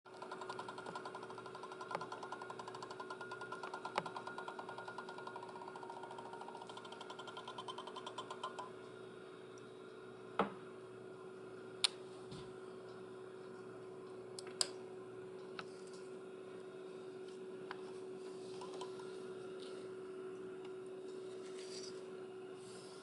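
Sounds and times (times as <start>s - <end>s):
laminator motor humming: 0.1s - 23.0s
rapid rhythmic clicking: 0.2s - 8.7s.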